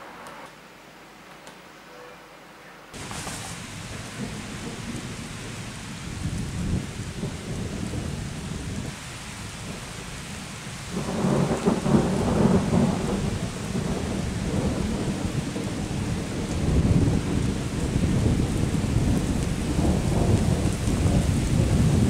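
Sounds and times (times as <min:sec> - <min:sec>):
steady rain: 0:00.0 - 0:22.0
thunder rumbling: 0:03.0 - 0:22.0.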